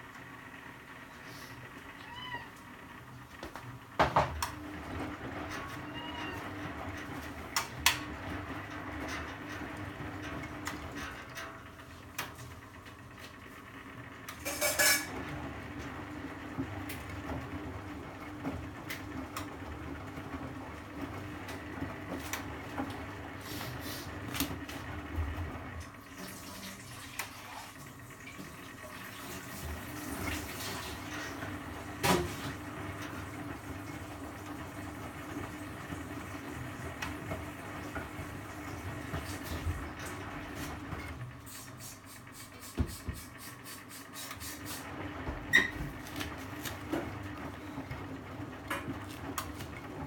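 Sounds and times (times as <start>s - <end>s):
motor hum: 0.0s - 26.1s
washing machine drum turning: 3.4s - 13.3s, 14.0s - 50.0s.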